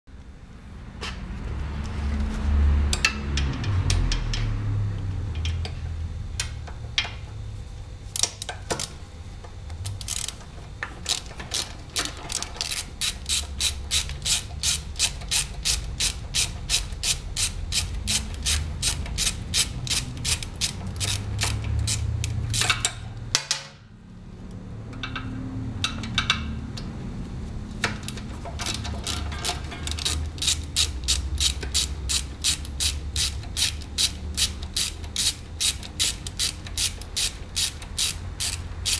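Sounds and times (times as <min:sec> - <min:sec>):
ratchet wrench clicking: 0:09.8 - 0:23.0, 0:28.0 - 0:38.9.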